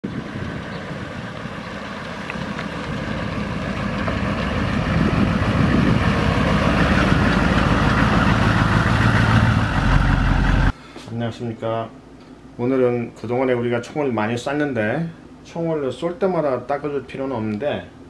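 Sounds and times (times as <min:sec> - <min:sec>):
diesel engine passing by: 0:00.0 - 0:10.8.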